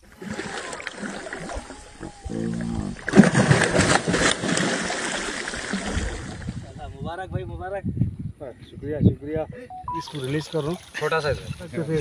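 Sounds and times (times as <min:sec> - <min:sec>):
fish thrashing and splashing: 0:00.1 - 0:06.5.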